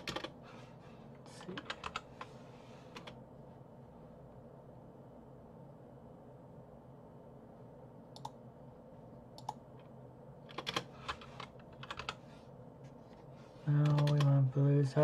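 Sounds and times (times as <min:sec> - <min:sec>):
faint low hum: 0:00.0 - 0:15.0
keyboard keystrokes: 0:13.8 - 0:14.3.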